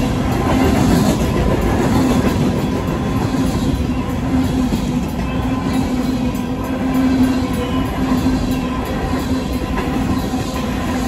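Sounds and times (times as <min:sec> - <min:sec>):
crossing bell ringing: 0:00.0 - 0:11.0
freight train wheels clattering: 0:00.0 - 0:11.0.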